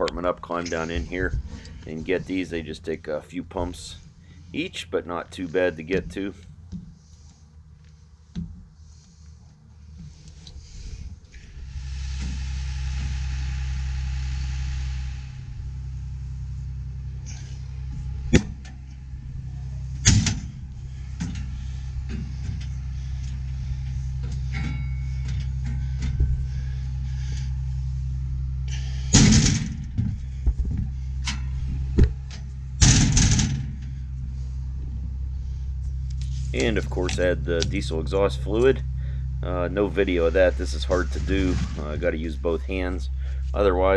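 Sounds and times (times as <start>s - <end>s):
diesel engine idling: 0.0s - 43.9s
sharp knocks and thumps: 8.3s - 8.7s.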